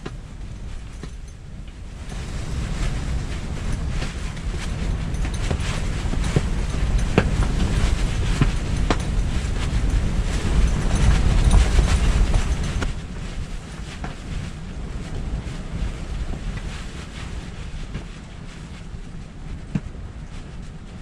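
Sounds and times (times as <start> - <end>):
strong wind rumbling: 0.0 - 21.0.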